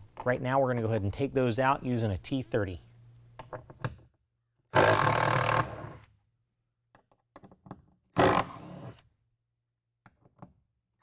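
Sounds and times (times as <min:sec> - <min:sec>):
impact driver running: 0:08.2 - 0:08.9.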